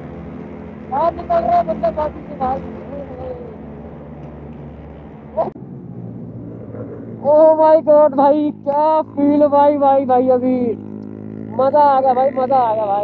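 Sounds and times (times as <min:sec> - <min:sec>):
motorcycle engine and wind rumble: 0:00.0 - 0:13.0.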